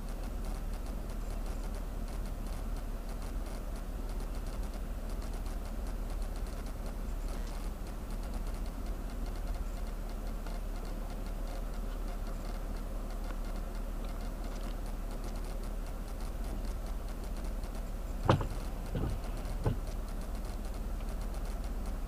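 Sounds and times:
faint rapid ticking: 0.0s - 22.0s
low rumble inside car: 0.0s - 22.0s
short thumps: 18.1s - 20.0s.

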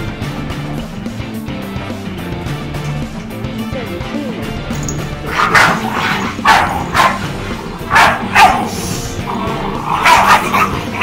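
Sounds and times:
puppy yappy barks: 5.4s - 7.3s, 7.9s - 8.8s, 9.9s - 11.0s.

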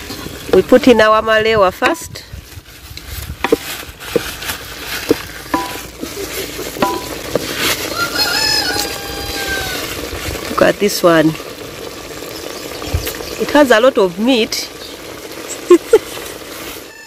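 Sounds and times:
frying sizzle: 0.0s - 17.0s
spatula knocking against pot: 5.5s - 5.9s
rooster crowing: 7.8s - 9.9s, 16.8s - 17.0s.

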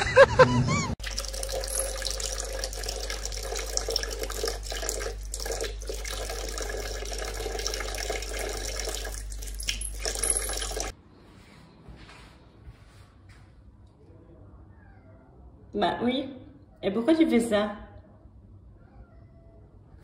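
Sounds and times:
faucet water splashing into sink: 1.0s - 10.9s.

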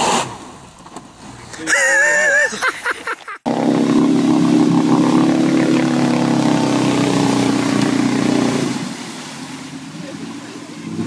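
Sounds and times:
engine droning at high revs: 3.5s - 11.0s.

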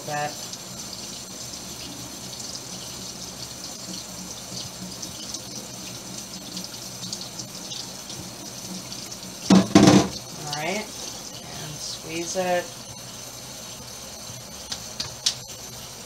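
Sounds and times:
person speaking: 0.0s - 0.4s, 10.4s - 12.8s
faucet running into steel sink: 0.0s - 16.0s.

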